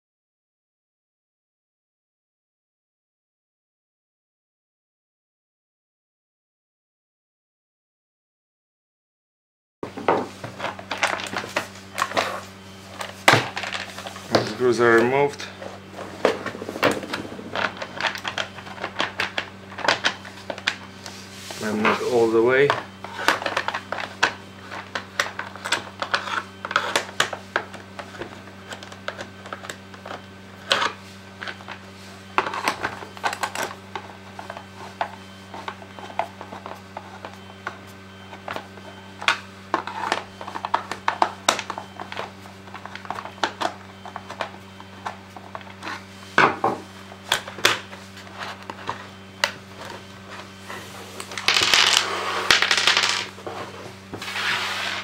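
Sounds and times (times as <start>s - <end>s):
steady low hum: 9.8s - 55.0s.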